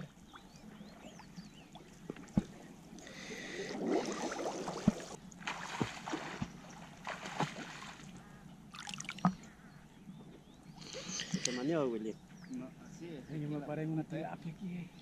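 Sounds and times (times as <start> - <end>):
water sloshing and splashing: 0.0 - 9.6.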